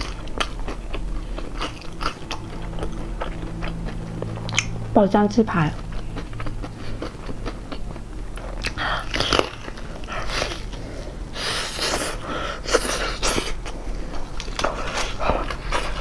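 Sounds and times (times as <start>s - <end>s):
crunching of fried chicken: 0.0s - 4.7s.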